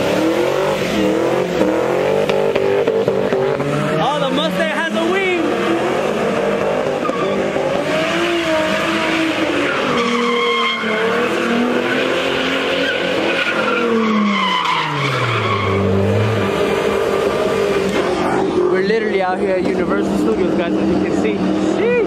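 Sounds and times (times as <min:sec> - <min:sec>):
car engine revving hard: 0:00.0 - 0:22.0
tyres squealing: 0:06.8 - 0:19.1.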